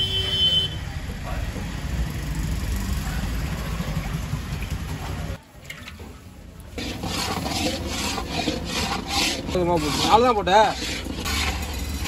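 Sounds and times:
metal spatula scraping iron pan: 0:06.8 - 0:12.0.

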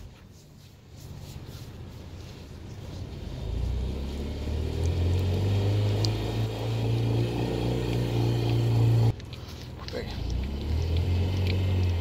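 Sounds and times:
car engine revving: 0:03.2 - 0:09.2, 0:10.2 - 0:12.0.

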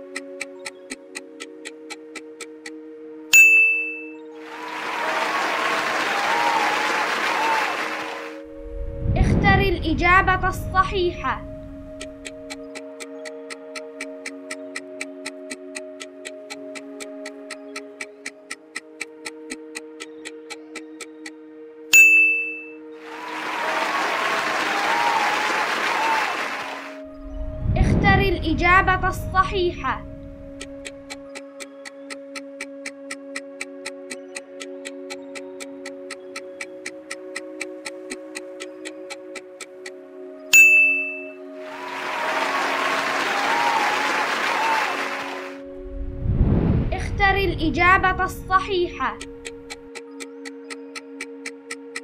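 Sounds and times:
countdown timer ticking: 0:00.0 - 0:05.8, 0:07.3 - 0:24.4, 0:26.9 - 0:52.0
bright ding: 0:03.3 - 0:04.1, 0:22.0 - 0:22.7, 0:40.6 - 0:41.3
recorded applause and cheering: 0:04.4 - 0:08.5, 0:23.0 - 0:27.0, 0:41.6 - 0:45.6.

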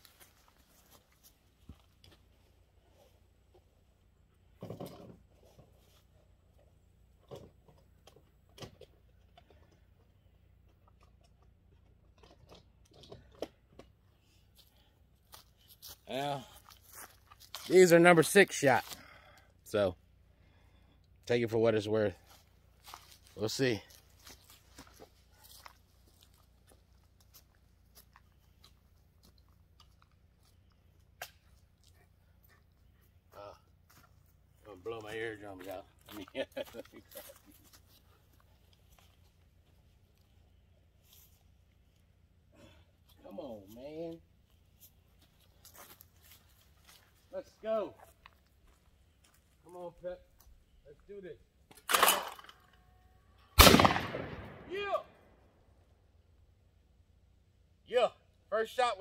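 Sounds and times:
footsteps crunching in dry grass: 0:00.0 - 0:02.6, 0:14.6 - 0:18.0, 0:22.2 - 0:31.1, 0:43.6 - 0:50.5.

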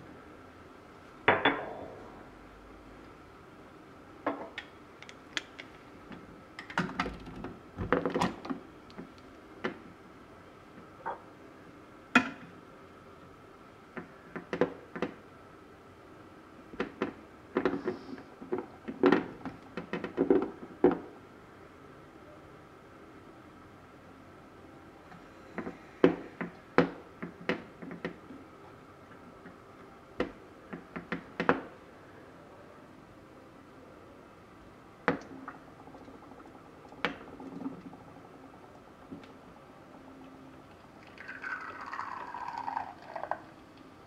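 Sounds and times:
glass cup set down: 0:01.3 - 0:01.9.

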